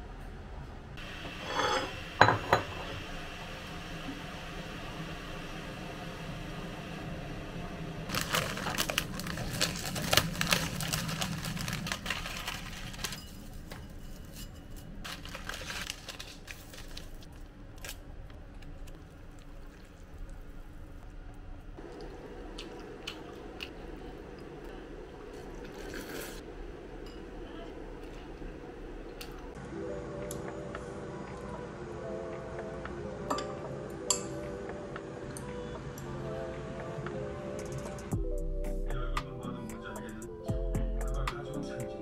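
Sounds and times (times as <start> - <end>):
seasoning sachet tearing: 8.1 - 13.6, 15.0 - 18.0.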